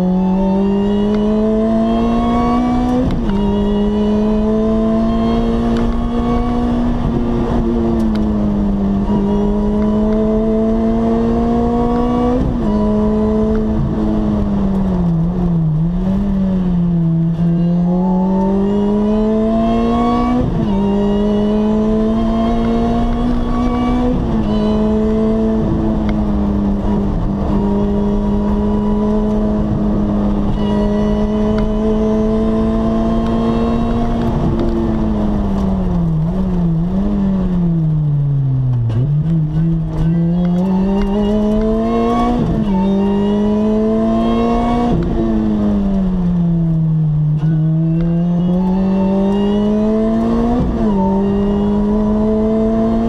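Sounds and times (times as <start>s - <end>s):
car engine while driving: 0.0s - 53.0s.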